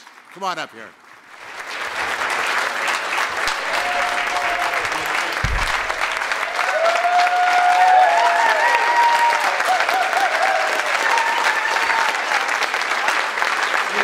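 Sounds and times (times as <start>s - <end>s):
audience applauding: 0.0s - 14.0s
low thump: 5.4s - 6.3s.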